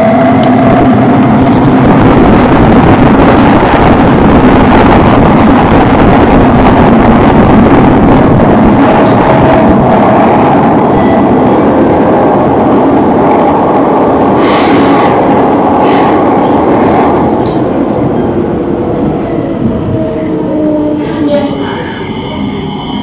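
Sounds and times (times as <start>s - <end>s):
train rumbling through tunnel: 0.0s - 23.0s.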